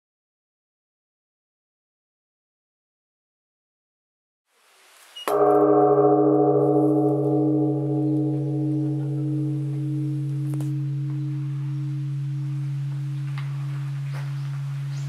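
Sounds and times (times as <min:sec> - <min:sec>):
large temple bell ringing: 0:05.3 - 0:15.0.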